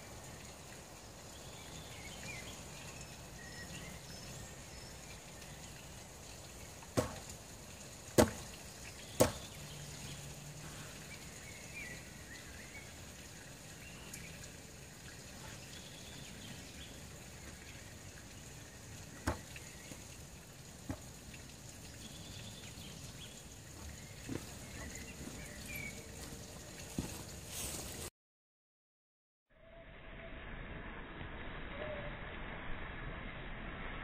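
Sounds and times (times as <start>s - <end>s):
forest ambience: 0.0s - 28.1s
boots knocking on wooden bench: 7.0s - 7.3s, 8.2s - 8.5s, 9.2s - 9.5s, 19.2s - 19.5s, 23.8s - 25.4s.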